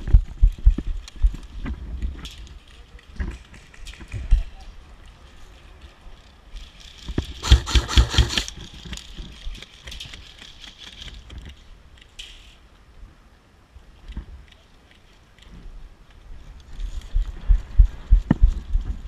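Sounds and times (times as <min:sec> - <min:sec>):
airsoft rifle shots: 0:07.4 - 0:08.5.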